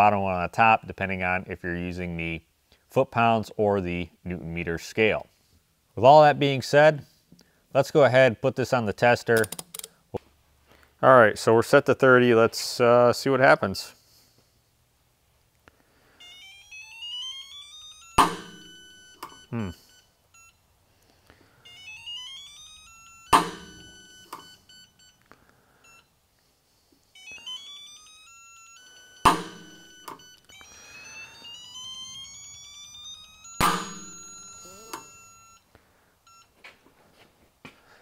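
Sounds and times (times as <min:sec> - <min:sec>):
torque wrench click: 0:09.4 - 0:09.9.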